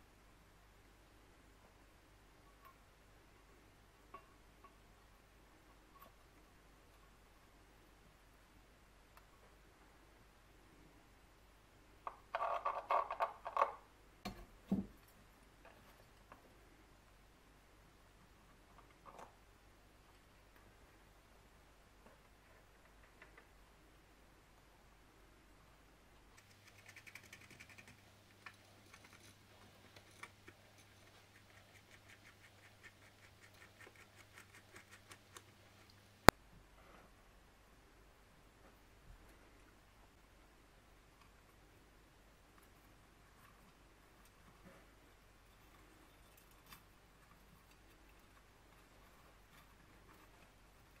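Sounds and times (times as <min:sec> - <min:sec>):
faint low hum: 0:00.0 - 0:51.0
wire clicks and scratches: 0:26.3 - 0:36.4.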